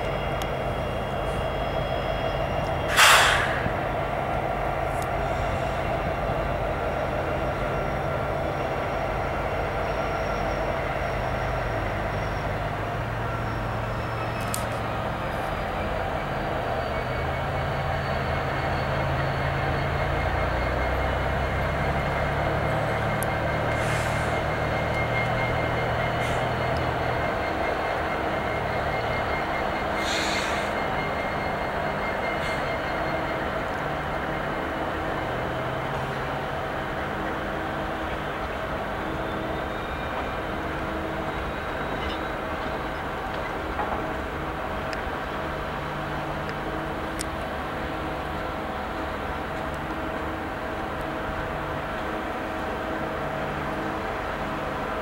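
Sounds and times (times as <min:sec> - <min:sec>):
diesel locomotive engine drone: 0:00.0 - 0:55.0
rail and wheel noise: 0:00.0 - 0:55.0
short hiss: 0:02.9 - 0:03.7
loud rushing burst: 0:02.9 - 0:03.8.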